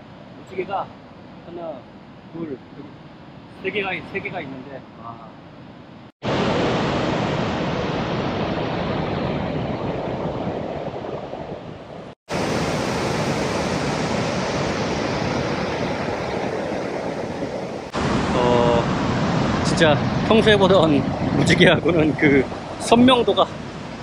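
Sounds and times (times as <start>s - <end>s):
waterfall rushing: 6.2s - 9.0s, 12.3s - 21.6s.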